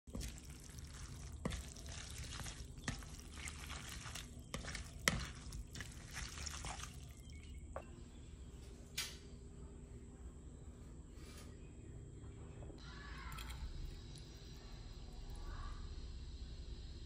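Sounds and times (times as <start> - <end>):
wet noodles squelching in bowl: 0.1 - 7.7.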